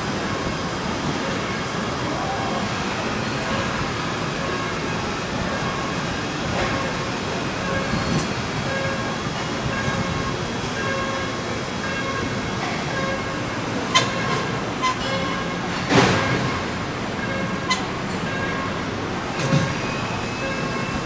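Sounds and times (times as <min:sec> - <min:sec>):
electronic warning beeps: 0:03.2 - 0:21.0.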